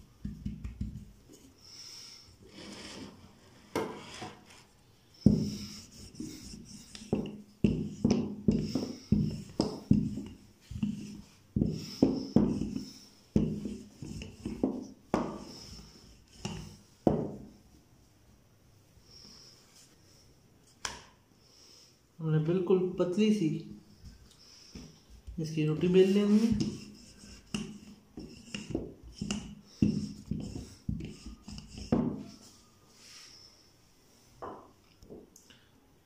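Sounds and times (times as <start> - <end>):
rolling pin rolling dough: 0.0 - 1.5, 5.2 - 17.5, 24.0 - 32.8
rolling pin knocking on wooden board: 7.0 - 15.5, 16.4 - 17.5, 26.5 - 32.3.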